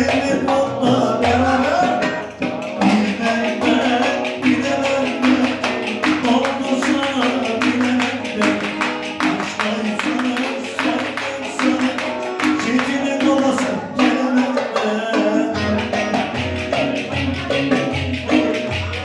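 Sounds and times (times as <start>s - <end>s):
driving percussion beat: 0.0s - 19.0s
fast dance tune on saz: 15.6s - 19.0s.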